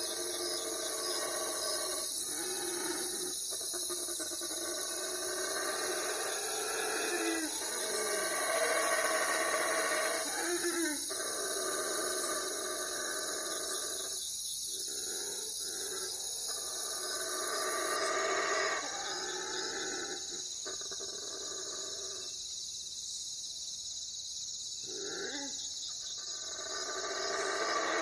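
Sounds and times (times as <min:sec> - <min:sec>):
falling animal calls: 0:00.0 - 0:13.4.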